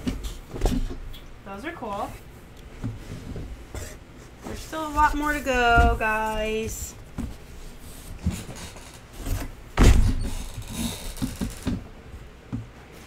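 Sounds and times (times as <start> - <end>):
loud thump: 9.8 - 10.3.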